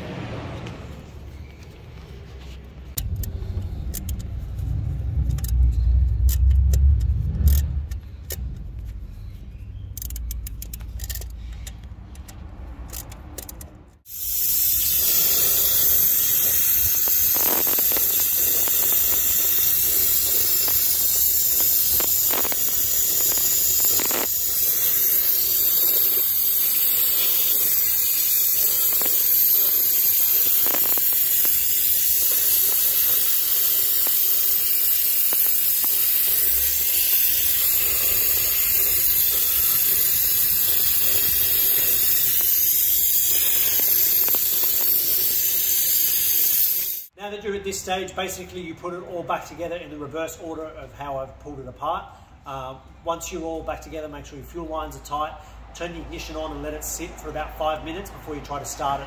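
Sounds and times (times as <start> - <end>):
low handling rumble: 2.8 - 10.9
loud steady hiss: 14.1 - 47.1.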